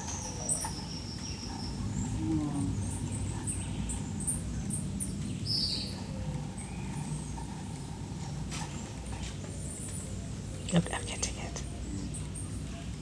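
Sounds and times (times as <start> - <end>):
hummingbirds chipping and twittering: 0.0 - 13.0
steady low background hum: 0.0 - 13.0.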